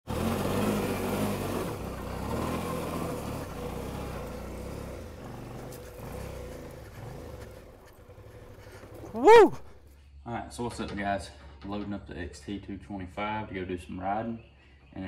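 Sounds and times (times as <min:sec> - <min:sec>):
motorcycle engine running: 0:00.0 - 0:09.8.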